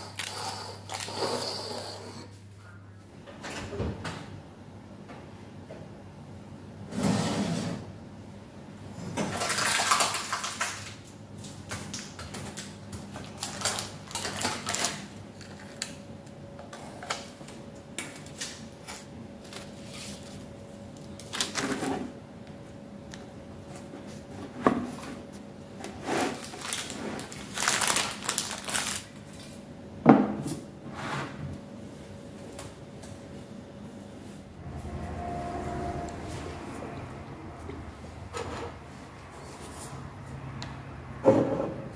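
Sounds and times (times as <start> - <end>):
baking paper rustling: 9.4 - 16.0, 18.2 - 22.1, 23.7 - 29.6.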